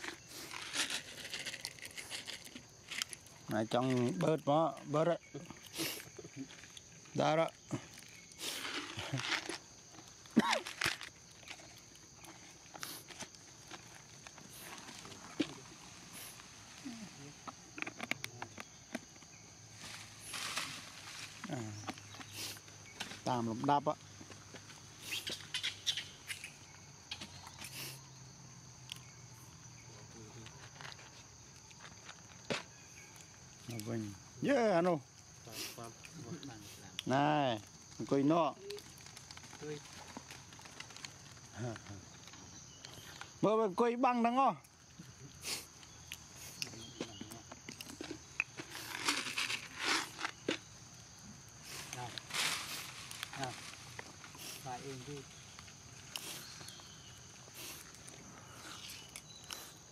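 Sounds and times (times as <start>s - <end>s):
monkeys crunching food: 0.0s - 23.2s, 35.0s - 43.4s, 44.6s - 59.9s
insects droning: 0.0s - 59.9s.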